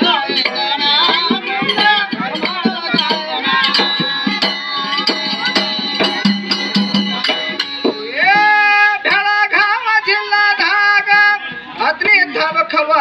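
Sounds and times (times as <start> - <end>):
frame drum beaten: 0.0 - 9.4
sustained instrumental tones: 0.0 - 9.4
man singing: 0.0 - 13.0.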